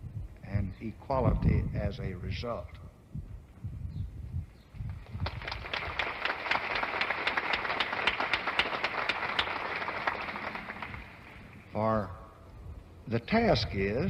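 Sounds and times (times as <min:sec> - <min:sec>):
large audience applauding: 0:05.0 - 0:11.6.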